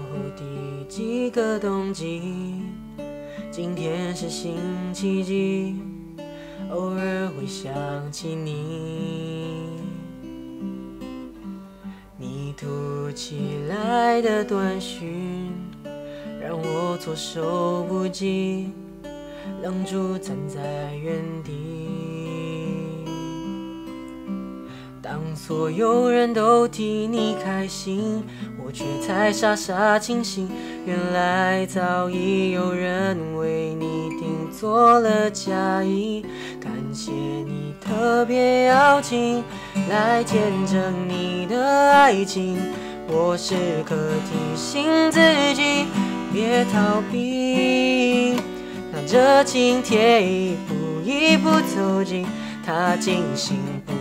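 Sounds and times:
man singing a slow ballad: 0.0s - 10.5s, 12.1s - 18.8s, 19.4s - 23.6s, 24.8s - 54.0s
acoustic guitar strummed and plucked: 0.0s - 54.0s.

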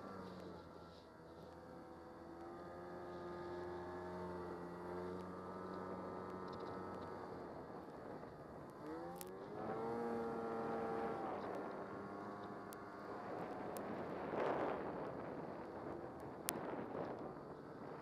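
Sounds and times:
snowmobile engine revving: 8.8s - 16.0s.

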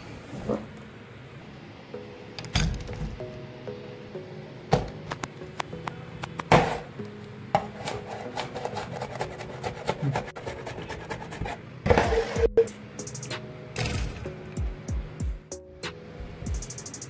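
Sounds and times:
soft background music: 0.2s - 17.0s.

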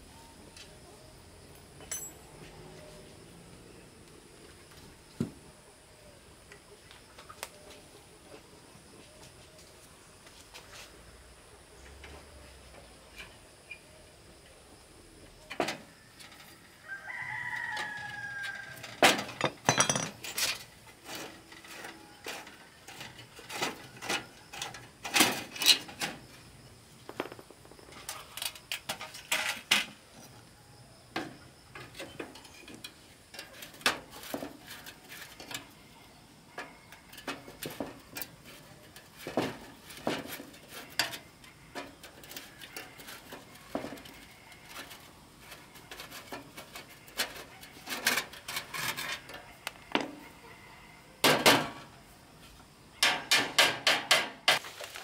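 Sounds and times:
sharp knocks and clinks: 1.8s - 2.5s, 19.1s - 20.6s
rooster crowing: 15.9s - 19.0s, 49.5s - 51.2s.

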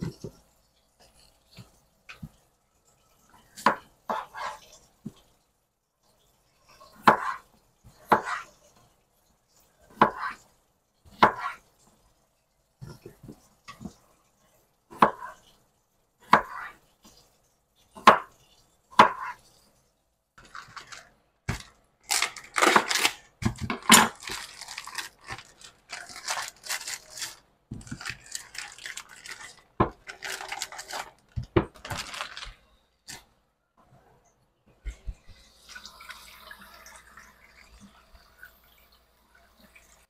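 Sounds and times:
corn husks ripping and rustling: 20.4s - 32.6s.

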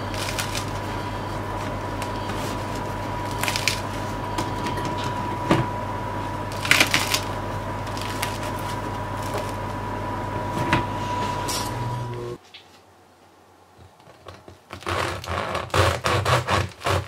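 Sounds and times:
bread crust crackling and rustling: 0.0s - 10.5s, 13.9s - 17.0s
electrical hum with high tone: 0.0s - 13.6s.

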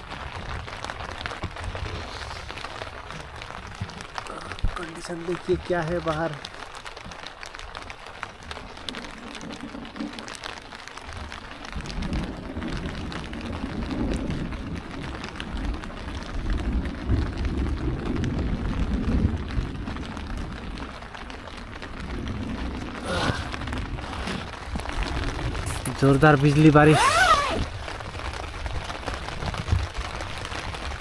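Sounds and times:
rain falling on a tent: 0.0s - 31.0s
low rumble of thunder: 8.4s - 26.9s.

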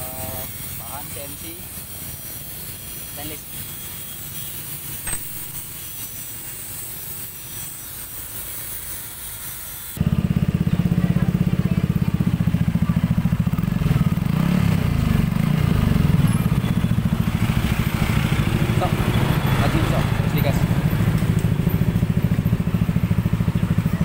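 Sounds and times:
scooter engine starting and idling: 10.0s - 24.0s.

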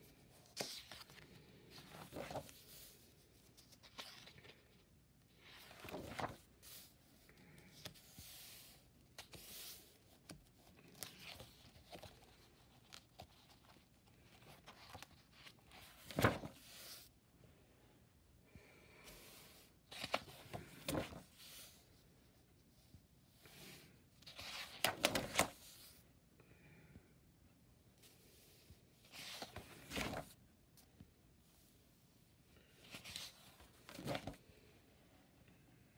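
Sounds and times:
sketchbook pages turning: 0.1s - 17.1s, 19.2s - 21.8s, 24.2s - 26.0s, 29.0s - 30.4s, 32.8s - 34.4s.

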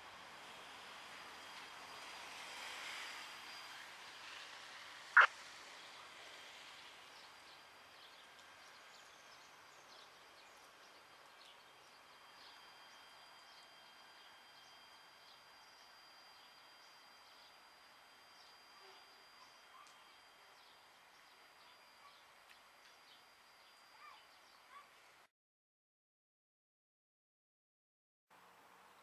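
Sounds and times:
small birds chirping: 18.3s - 25.1s.

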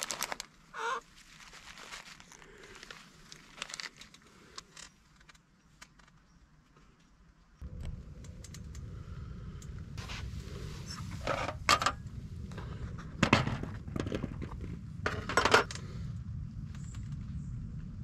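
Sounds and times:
steady low rumble: 7.6s - 18.0s.

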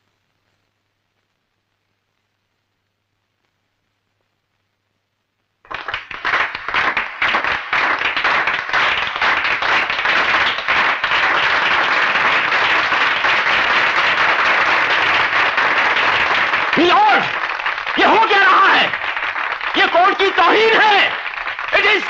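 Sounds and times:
crowd applause: 5.7s - 22.0s.

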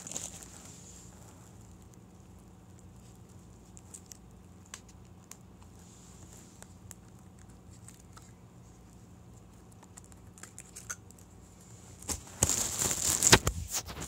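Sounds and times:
handling rustling: 0.0s - 1.7s.

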